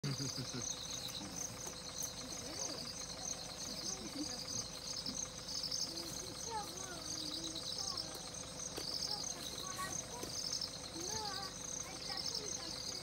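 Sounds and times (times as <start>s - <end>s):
insects chirping: 0.0s - 13.0s.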